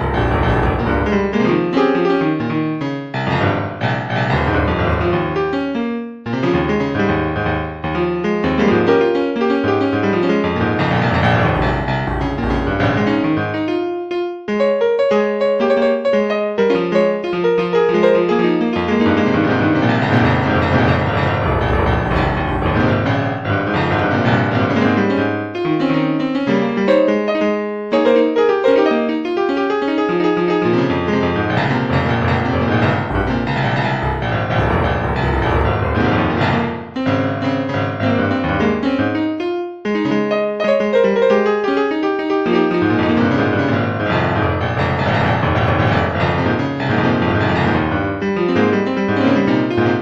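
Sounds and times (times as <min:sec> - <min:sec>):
deep bass notes: 0:00.0 - 0:01.6, 0:03.3 - 0:05.4, 0:10.7 - 0:13.3, 0:19.5 - 0:24.5, 0:31.5 - 0:37.0
keyboard playing chords: 0:00.0 - 0:02.3, 0:03.2 - 0:13.6, 0:14.6 - 0:25.0, 0:30.6 - 0:41.8, 0:42.4 - 0:50.0.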